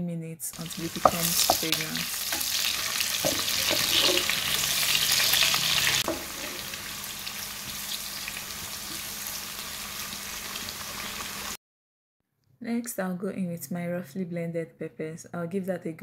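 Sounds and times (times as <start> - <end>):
onions sizzling in a pan: 0.6 - 11.6
spoon knocking: 0.9 - 2.5, 3.2 - 4.4.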